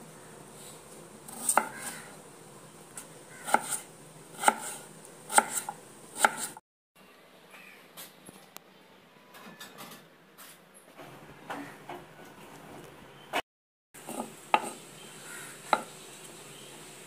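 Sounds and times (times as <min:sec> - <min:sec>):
knife chopping on wooden board: 0:01.3 - 0:02.1, 0:03.0 - 0:06.6, 0:14.1 - 0:14.8, 0:15.7 - 0:15.9.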